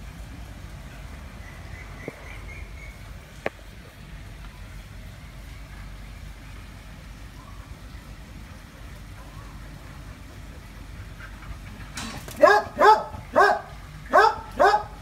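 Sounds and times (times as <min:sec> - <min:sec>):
faint bird chirping: 0:07.3 - 0:07.8.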